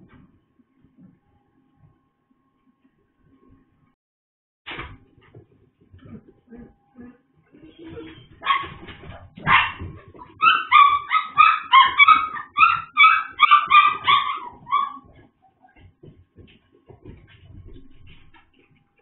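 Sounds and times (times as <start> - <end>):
puppy yipping: 8.4 - 15.9.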